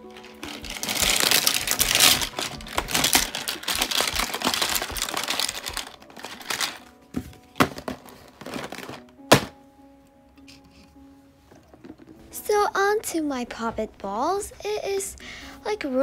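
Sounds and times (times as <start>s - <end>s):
toys clattering into cardboard box: 7.6s - 9.6s
box lid knock: 8.8s - 9.6s.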